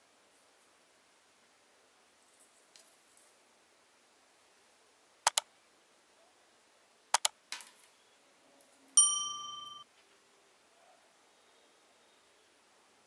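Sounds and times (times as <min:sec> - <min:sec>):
mouse clicks: 0:05.3 - 0:05.5, 0:07.1 - 0:07.4
bell-like notification ding: 0:09.0 - 0:09.8.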